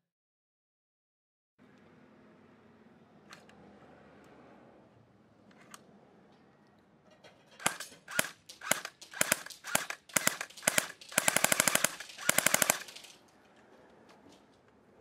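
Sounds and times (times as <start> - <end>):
airsoft gun full-auto burst: 7.6 - 13.2
airsoft gun single shots: 7.6 - 13.2
gun click: 7.6 - 13.2.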